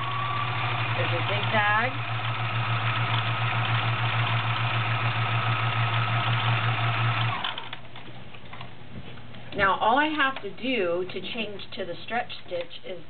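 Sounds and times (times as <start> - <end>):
sewing machine stitching: 0.0 - 7.8.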